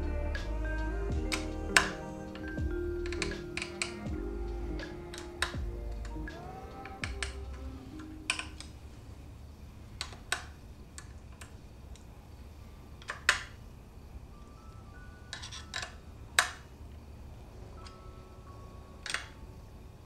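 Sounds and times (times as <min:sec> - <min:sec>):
quiet background music: 0:00.0 - 0:20.0
metal tools clicking and tapping: 0:01.3 - 0:04.2, 0:04.8 - 0:08.8, 0:15.3 - 0:16.6, 0:19.0 - 0:19.4.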